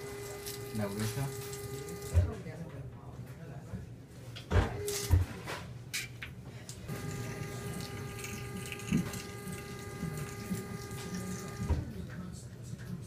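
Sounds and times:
pitched machine hum: 0.0s - 2.3s, 6.9s - 11.9s.

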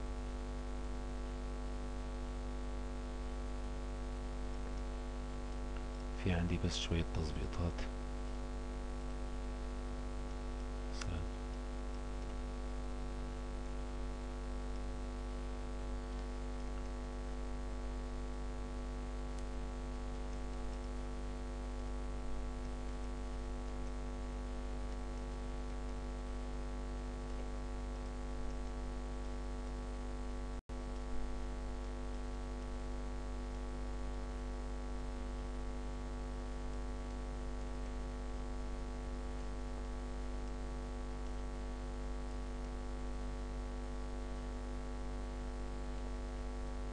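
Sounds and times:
electrical mains hum: 0.0s - 46.9s
faint click: 11.0s - 11.6s.

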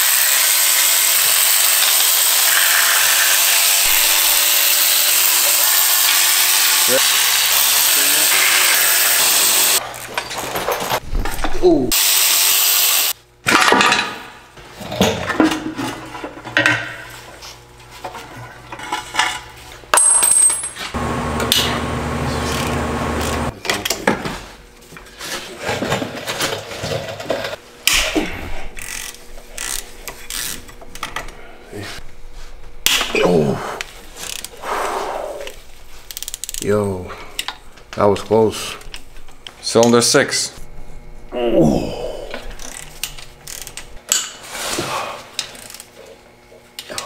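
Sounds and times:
steady whirr: 21.0s - 23.5s
ratchet clicking: 28.8s - 30.6s, 36.1s - 36.6s, 42.6s - 43.9s.

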